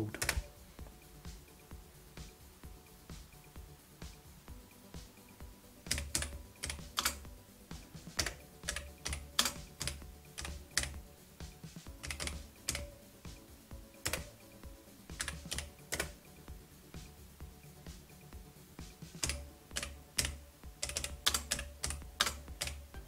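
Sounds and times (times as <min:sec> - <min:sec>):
keyboard keys clicking: 0:00.0 - 0:00.5, 0:05.9 - 0:07.2, 0:08.1 - 0:11.0, 0:12.0 - 0:12.9, 0:14.0 - 0:14.4, 0:15.1 - 0:16.2, 0:19.2 - 0:23.0.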